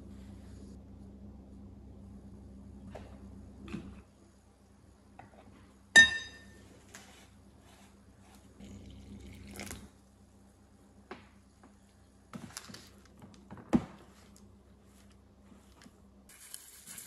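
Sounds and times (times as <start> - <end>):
clink against glass bowl: 6.0 - 6.6.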